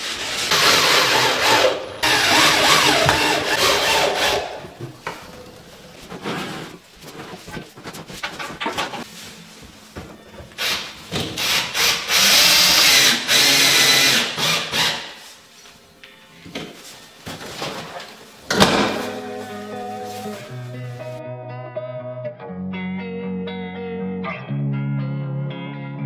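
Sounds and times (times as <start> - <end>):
cordless drill driving screws: 0.5 - 4.6, 11.4 - 15.1.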